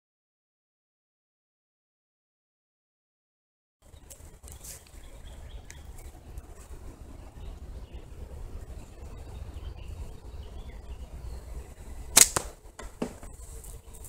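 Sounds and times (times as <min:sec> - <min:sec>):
slingshot bands snapping: 0:12.2 - 0:12.6
ball knocking on target: 0:12.3 - 0:13.3.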